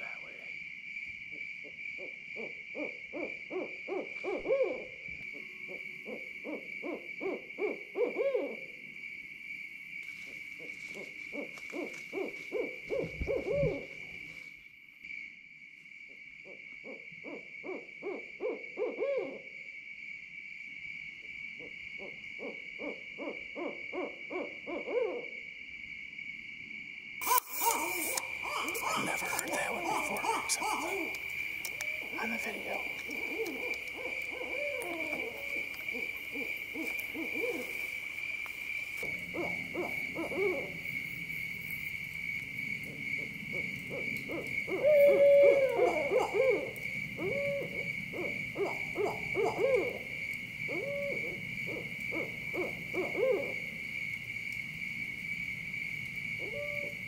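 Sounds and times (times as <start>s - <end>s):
high insect trill: 0.0s - 57.0s
owls hooting: 2.0s - 5.0s, 5.7s - 8.8s, 10.8s - 14.0s, 16.8s - 19.4s, 22.0s - 25.3s, 27.2s - 37.9s, 39.0s - 40.8s, 43.5s - 50.1s, 50.7s - 53.6s, 56.4s - 57.0s.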